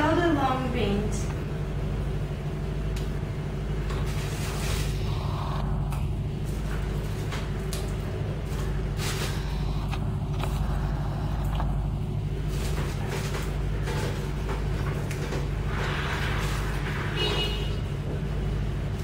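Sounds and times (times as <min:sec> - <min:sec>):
low hum: 0:00.0 - 0:19.0
plastic bag rustling: 0:04.0 - 0:05.1, 0:06.4 - 0:17.3.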